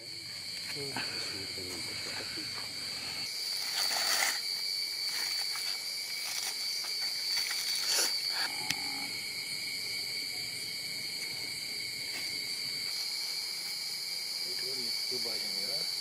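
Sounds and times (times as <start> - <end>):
night insects chirring: 0.0 - 16.0
aluminium foil crinkling: 3.5 - 8.2.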